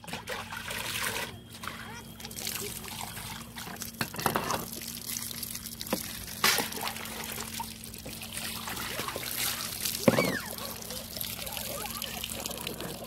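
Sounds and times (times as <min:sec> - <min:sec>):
water trickling and dripping: 0:00.5 - 0:13.0.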